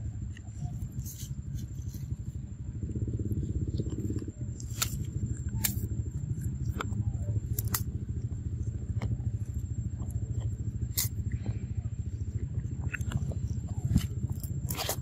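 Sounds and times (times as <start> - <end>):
low rumble: 0.0 - 15.0
leaves tearing with crackling snaps: 0.2 - 2.4, 3.3 - 8.4, 10.2 - 11.6, 12.8 - 15.0.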